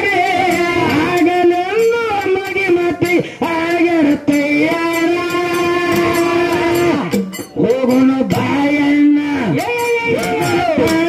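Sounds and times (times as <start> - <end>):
percussion strokes: 0.0 - 11.0
person singing long notes: 3.4 - 11.0.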